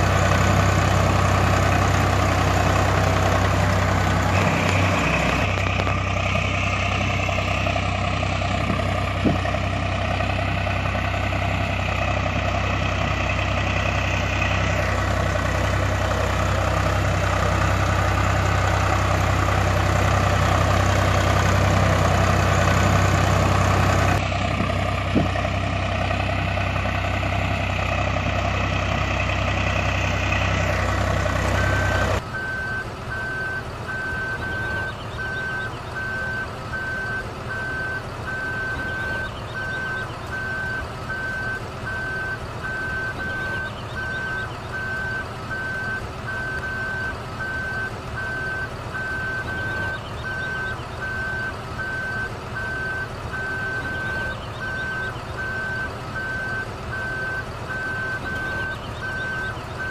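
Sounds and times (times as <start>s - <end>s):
truck engine idling: 0.0s - 59.9s
reversing alarm beeping: 30.4s - 59.9s.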